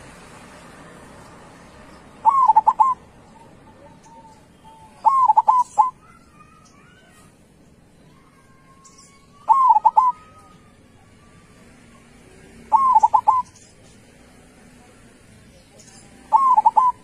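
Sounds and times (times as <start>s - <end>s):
dove cooing: 2.2s - 6.2s, 9.4s - 10.5s, 12.6s - 13.6s, 16.2s - 17.0s.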